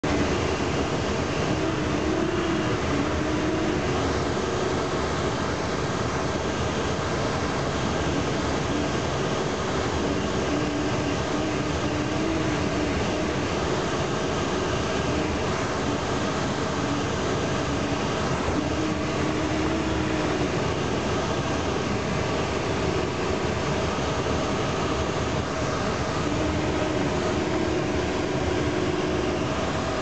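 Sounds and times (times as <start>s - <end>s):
faint wavering tone: 0.0s - 4.9s, 9.9s - 23.8s, 25.9s - 30.0s.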